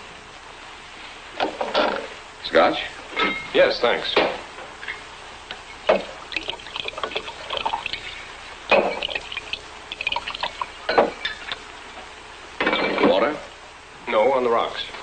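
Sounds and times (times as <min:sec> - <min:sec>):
liquid pouring: 0:05.8 - 0:11.1.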